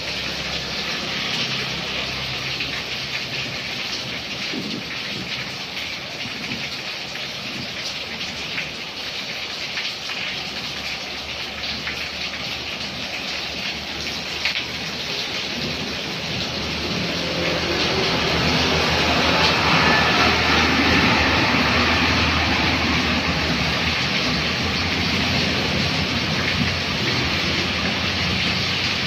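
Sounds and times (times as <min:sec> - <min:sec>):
rain on a wet street: 0:00.0 - 0:29.0
vehicle engine approaching: 0:14.8 - 0:29.0.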